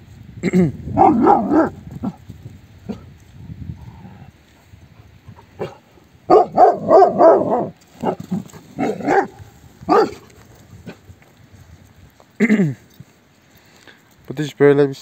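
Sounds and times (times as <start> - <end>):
large dogs barking: 0.9 - 2.2, 5.3 - 11.0.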